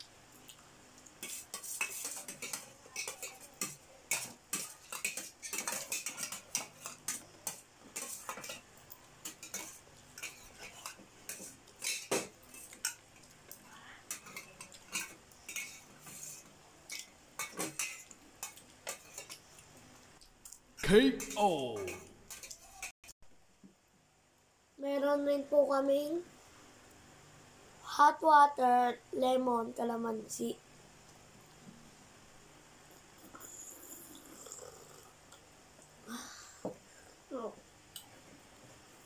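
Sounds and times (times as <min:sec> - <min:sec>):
cutlery clinking on metal plates: 0:01.2 - 0:08.6, 0:09.2 - 0:13.0, 0:14.1 - 0:19.4.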